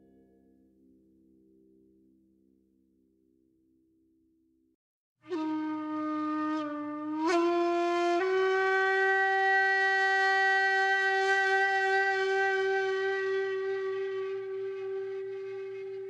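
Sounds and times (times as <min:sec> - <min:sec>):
solo wind instrument: 0:05.2 - 0:16.0.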